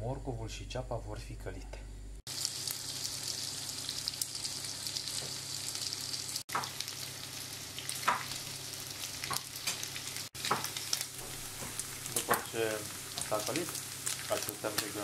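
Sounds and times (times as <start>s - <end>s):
ham sizzling in a pan: 2.3s - 15.0s.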